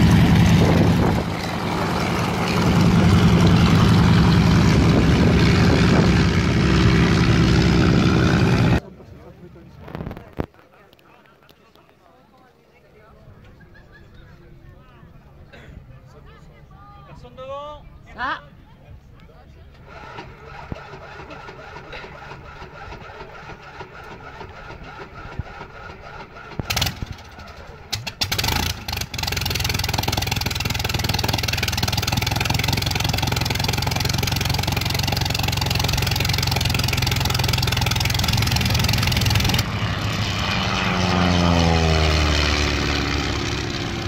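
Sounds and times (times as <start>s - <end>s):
plane engine starting: 0.0s - 8.8s, 19.7s - 44.0s.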